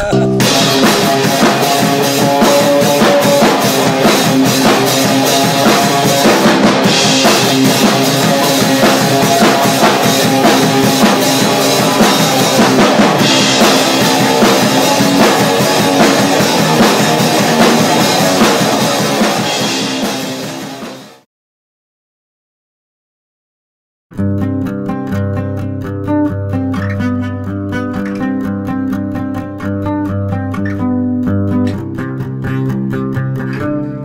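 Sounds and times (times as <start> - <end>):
loud rock music: 0.0 - 21.2, 24.1 - 34.0
cymbals crashing: 0.4 - 21.1.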